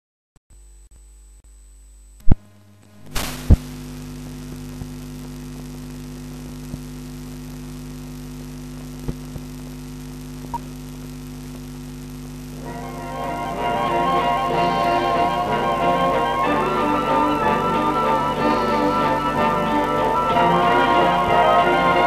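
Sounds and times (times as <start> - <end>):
electrical hum with hiss: 0.6 - 22.0
loud pops: 3.0 - 6.8
faint clicks: 8.4 - 12.5.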